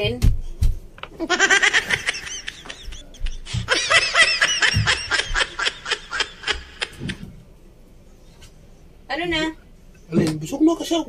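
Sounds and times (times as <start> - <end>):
man giggling: 1.3 - 7.2.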